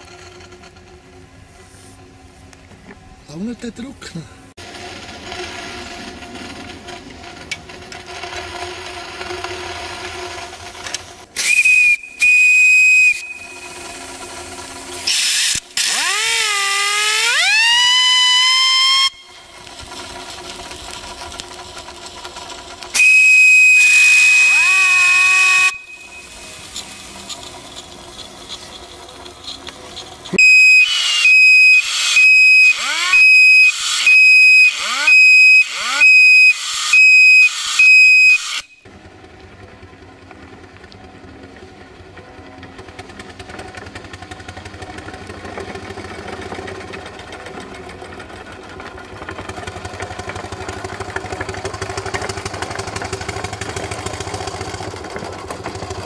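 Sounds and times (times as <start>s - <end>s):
steam whistle blasts: 11.4s - 14.4s, 15.0s - 19.5s, 22.9s - 27.1s, 30.4s - 38.8s.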